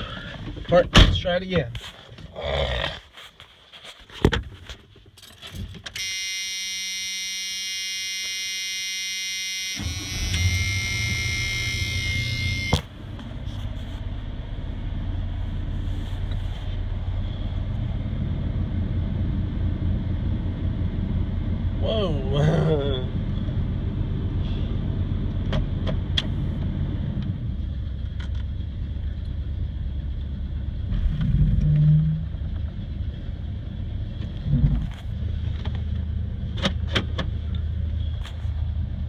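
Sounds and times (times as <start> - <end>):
warning buzzer: 6.0 - 12.8.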